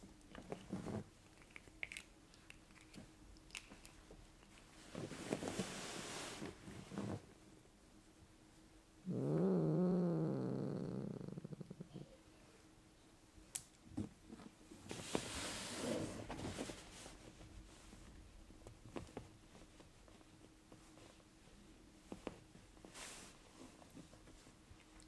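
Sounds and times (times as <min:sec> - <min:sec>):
cat purring: 0:09.0 - 0:12.3.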